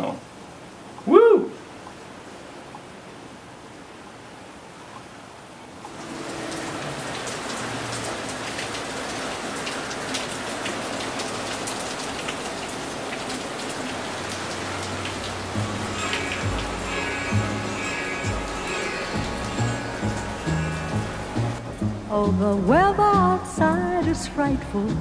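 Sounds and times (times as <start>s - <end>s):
rain and wet snow falling: 0.0s - 25.0s
music: 15.5s - 25.0s.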